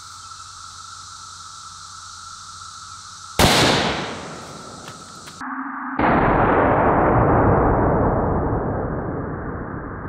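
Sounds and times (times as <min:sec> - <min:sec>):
rifle shot with echo: 0:03.4 - 0:05.4.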